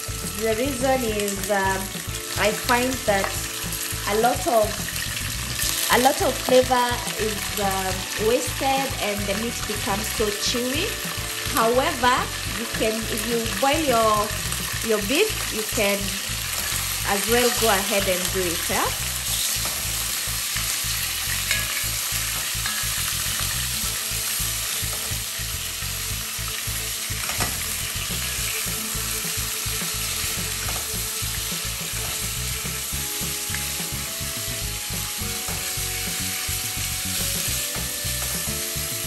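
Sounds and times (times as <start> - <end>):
beef and onions sizzling: 0.0 - 39.0.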